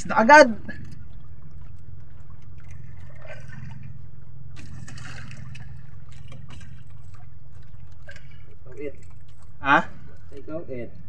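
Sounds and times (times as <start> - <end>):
steady low rumble: 0.0 - 11.0
water splashing against boat hull: 0.0 - 11.0.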